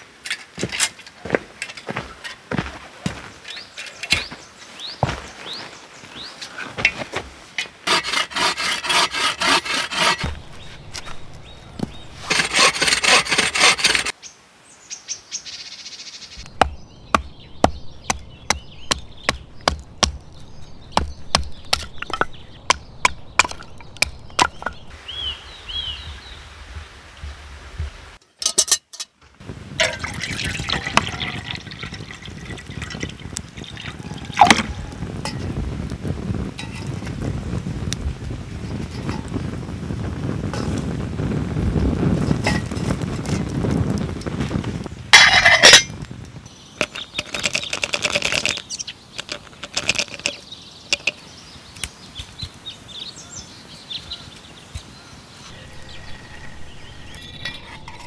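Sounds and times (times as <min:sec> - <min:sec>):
knife batoning through wood: 0:07.9 - 0:10.4, 0:12.2 - 0:14.1
rasping strokes on wood: 0:07.9 - 0:10.4, 0:12.2 - 0:14.1.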